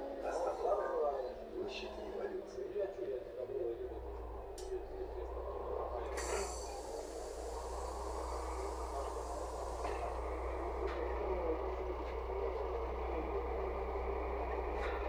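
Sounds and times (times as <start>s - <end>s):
bus engine hum: 0.0s - 15.0s
faint rattle or click: 6.2s - 7.9s.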